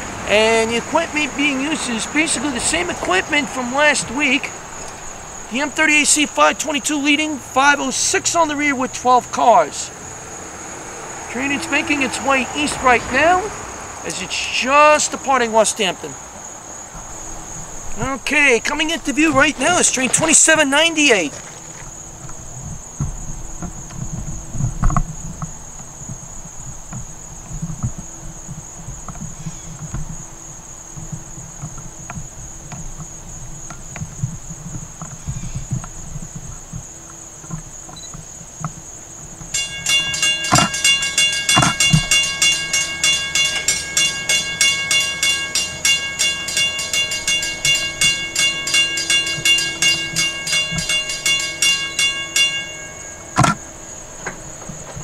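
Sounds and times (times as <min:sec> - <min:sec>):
crossing warning bell ringing: 0:00.0 - 0:09.9, 0:11.3 - 0:16.0, 0:17.1 - 0:21.4, 0:39.5 - 0:55.0
insects buzzing: 0:00.0 - 0:55.0
sharp clangs: 0:39.6 - 0:54.6.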